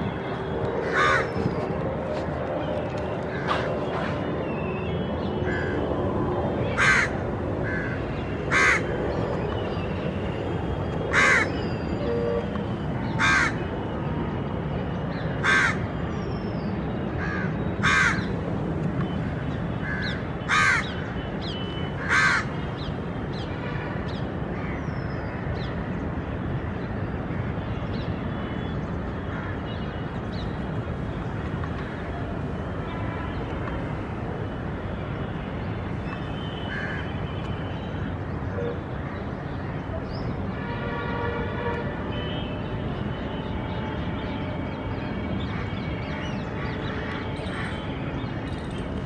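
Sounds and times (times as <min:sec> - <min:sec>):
crow cawing: 0:00.8 - 0:01.3, 0:06.7 - 0:08.9, 0:11.1 - 0:11.5, 0:13.2 - 0:13.6, 0:15.4 - 0:15.8, 0:17.2 - 0:18.3, 0:19.8 - 0:21.0, 0:22.0 - 0:22.6, 0:36.7 - 0:37.1.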